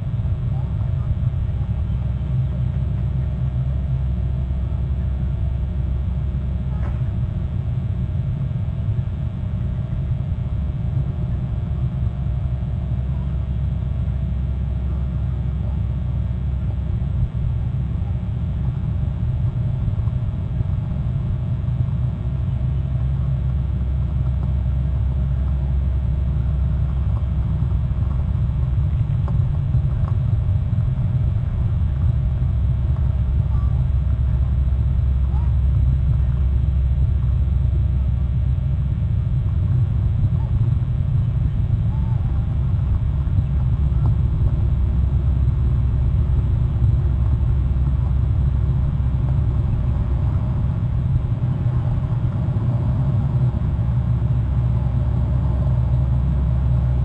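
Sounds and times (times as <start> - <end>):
steady low rumble: 0.0 - 57.0.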